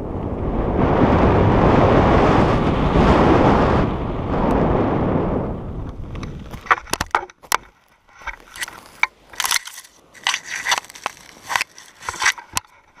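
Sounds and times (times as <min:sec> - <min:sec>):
gear rustling on dry grass: 0:06.2 - 0:13.0.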